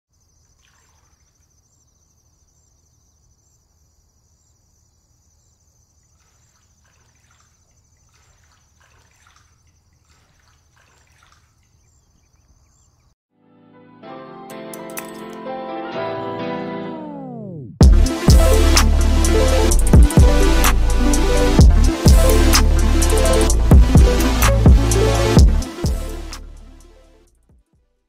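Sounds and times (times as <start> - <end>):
water splashing and sloshing: 0.2 - 1.7, 6.0 - 12.4.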